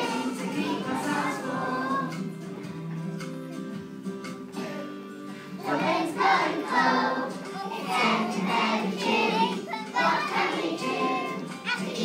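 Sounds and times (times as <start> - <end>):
children singing: 0.0 - 2.4, 5.6 - 12.0
backing music: 0.0 - 12.0.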